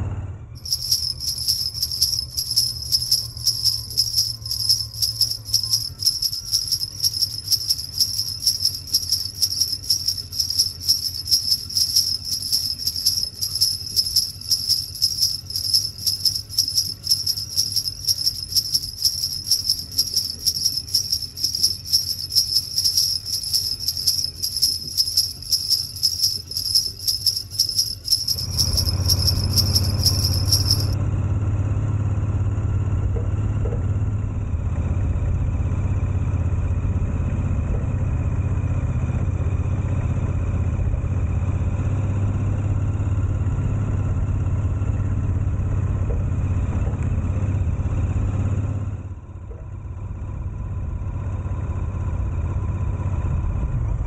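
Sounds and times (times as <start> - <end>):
vehicle low hum: 0.0 - 54.0
jingle bells shaken: 0.6 - 31.0.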